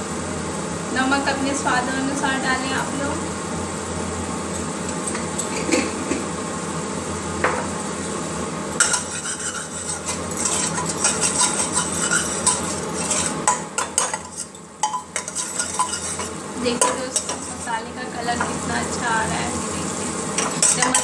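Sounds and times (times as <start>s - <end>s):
faint sizzle of frying paste: 0.0s - 21.0s
metal spoon scraping a pot: 8.8s - 17.7s, 20.4s - 21.0s.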